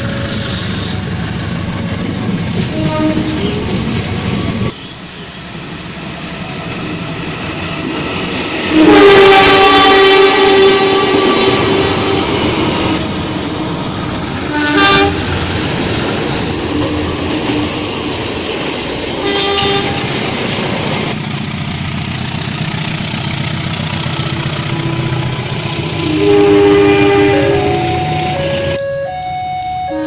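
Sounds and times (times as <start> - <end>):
train coaches rumbling past: 0.0 - 28.8
locomotive horn: 2.7 - 3.7, 8.7 - 13.1, 14.4 - 15.3, 19.2 - 20.1, 26.0 - 30.0.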